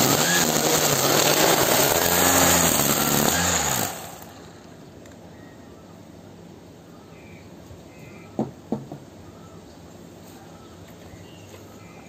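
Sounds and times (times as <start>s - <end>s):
birds harsh calls: 6.9s - 12.0s.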